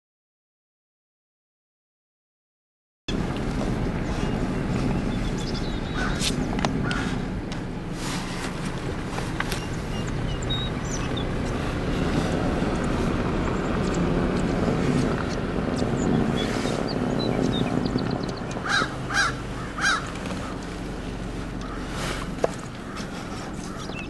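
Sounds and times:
car idling: 3.1 - 24.0
crow cawing: 5.9 - 6.2, 6.8 - 7.2, 18.6 - 20.6, 21.6 - 22.0, 22.8 - 24.0.

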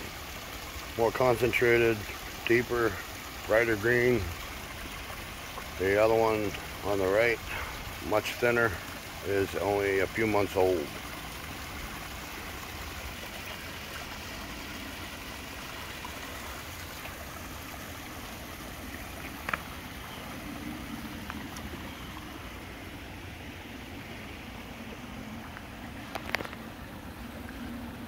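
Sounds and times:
waterfall splashing over rocks: 0.0 - 28.0.

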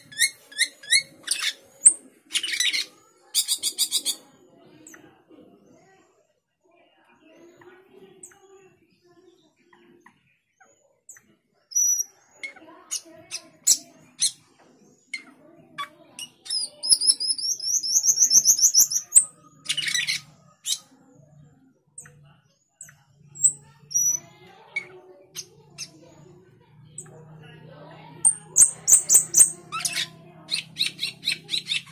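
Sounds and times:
bird harsh squawk: 0.0 - 4.2, 28.3 - 31.9
starling chirps and clicks: 0.0 - 5.0, 9.6 - 27.4, 28.2 - 31.9.

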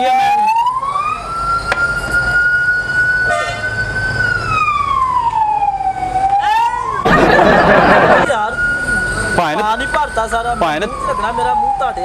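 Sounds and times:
siren wailing: 0.0 - 12.0.

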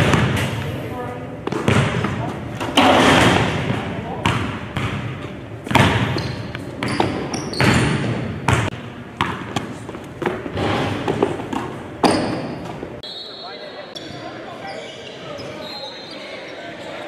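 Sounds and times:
basketball bouncing on gym floor: 0.0 - 0.7, 1.4 - 12.8.

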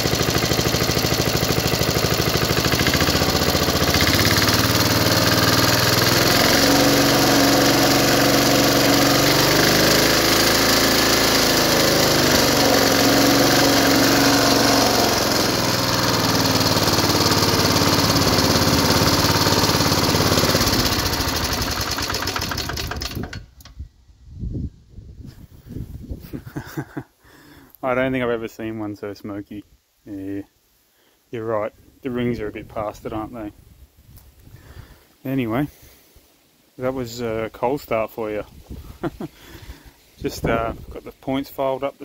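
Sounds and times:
lawn mower engine running: 0.0 - 23.7.

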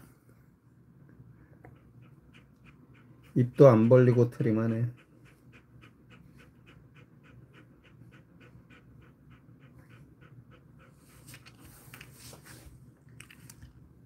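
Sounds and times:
dog panting: 1.5 - 12.5.

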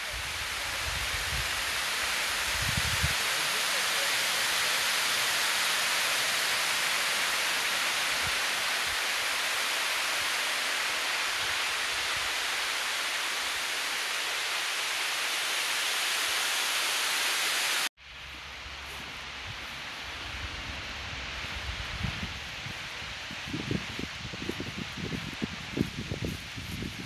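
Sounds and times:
water rushing over dam: 0.0 - 17.9.

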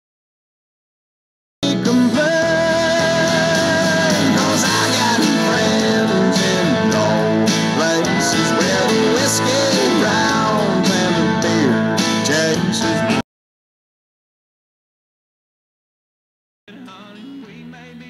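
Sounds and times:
song over loudspeakers: 1.6 - 13.2, 16.7 - 18.0.

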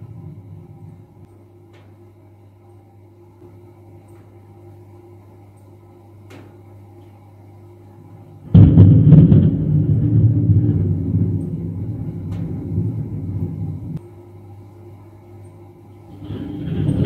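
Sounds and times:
thunder crack and rumble: 0.0 - 1.3, 8.5 - 14.0, 16.1 - 17.0.

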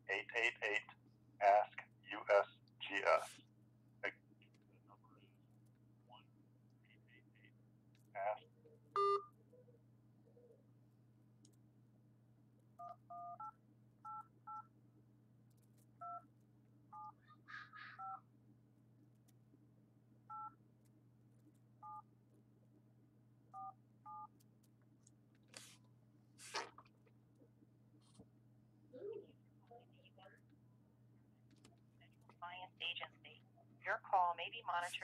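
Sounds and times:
faint low hum: 0.0 - 35.0
two-tone keypad beeps: 9.0 - 9.3.

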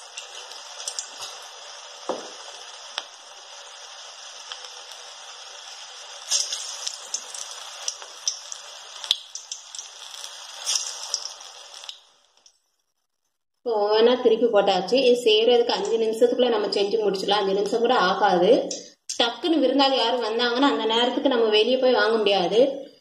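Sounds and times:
food deep-frying in oil: 0.0 - 12.6
oil crackling and popping: 0.0 - 13.2.

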